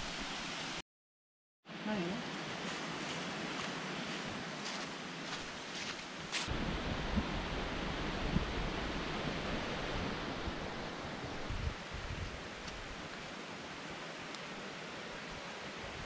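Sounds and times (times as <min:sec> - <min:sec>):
rushing hiss of outdoor air: 0:00.0 - 0:00.8, 0:05.7 - 0:16.0
wind buffeting microphone: 0:06.5 - 0:13.0.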